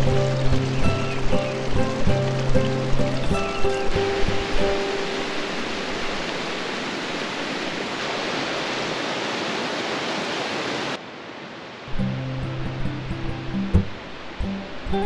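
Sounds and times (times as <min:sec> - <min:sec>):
music: 0:00.0 - 0:05.3, 0:11.9 - 0:15.0
waterfall rushing: 0:00.0 - 0:15.0.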